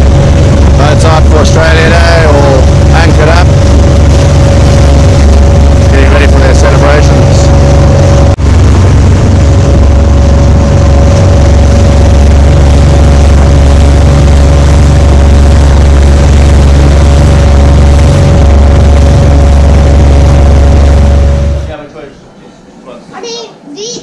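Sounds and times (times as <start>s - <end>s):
motorboat engine droning: 0.0s - 22.6s.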